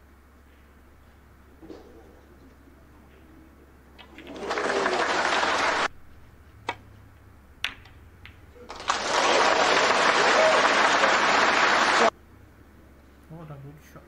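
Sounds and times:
snooker balls clicking: 4.0 - 4.9, 7.6 - 9.1
audience applauding: 4.0 - 5.9, 8.7 - 12.1.

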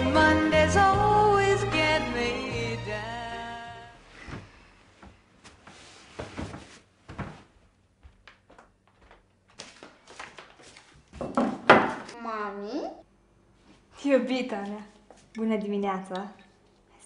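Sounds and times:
music: 0.0 - 4.0
bedding rustling: 4.0 - 11.2.

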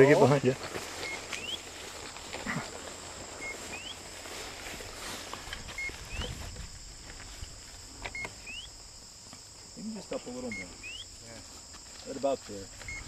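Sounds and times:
footsteps rustling through grass: 0.0 - 9.6
insects trilling: 0.0 - 13.0
two-part chirp with rising whistle: 3.7 - 4.0.

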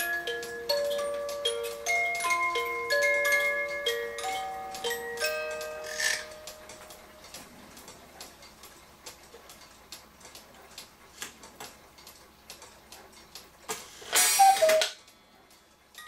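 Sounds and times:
clock ticking: 0.0 - 13.7
clock hands being turned: 4.2 - 9.6.

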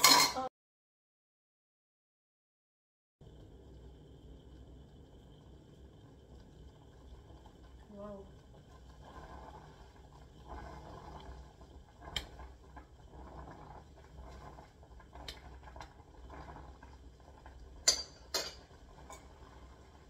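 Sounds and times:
metal utensil clinking on saucepan: 0.0 - 0.5, 17.8 - 19.4
water simmering: 3.2 - 20.0.

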